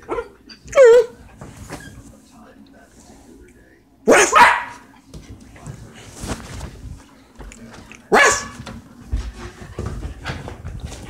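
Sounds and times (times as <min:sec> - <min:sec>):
dog barking: 0:00.0 - 0:01.2, 0:04.1 - 0:04.9, 0:08.1 - 0:08.6
scuffling: 0:05.1 - 0:11.0.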